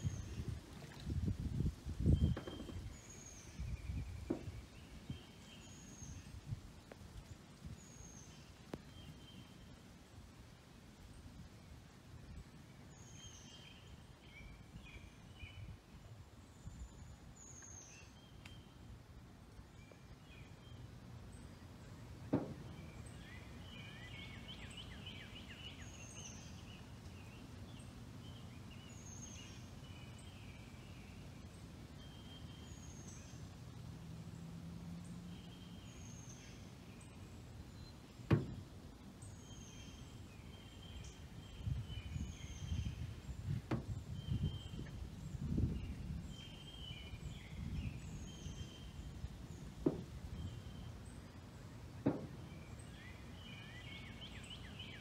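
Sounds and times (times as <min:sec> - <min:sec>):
sharp knocks: 0:04.3 - 0:04.6, 0:22.3 - 0:22.8, 0:38.3 - 0:38.6, 0:49.8 - 0:50.2, 0:52.0 - 0:52.5.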